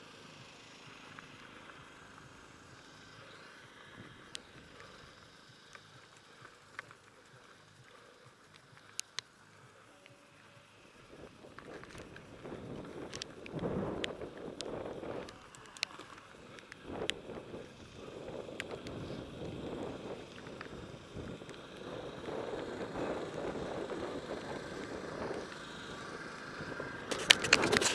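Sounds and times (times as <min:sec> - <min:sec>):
bike tyre rumble: 0:00.0 - 0:27.9
bike clicks and rattles: 0:00.1 - 0:27.9
wind rush on microphone: 0:11.1 - 0:27.9.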